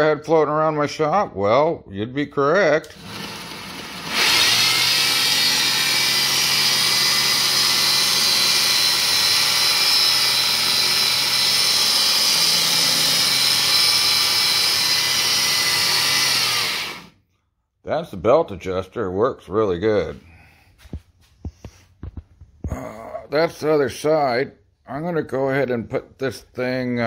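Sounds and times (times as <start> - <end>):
belt grinder whining: 2.8 - 17.2.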